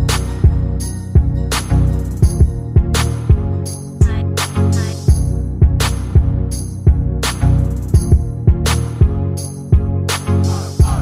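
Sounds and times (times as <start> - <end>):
beat-driven music with heavy bass: 0.0 - 11.0.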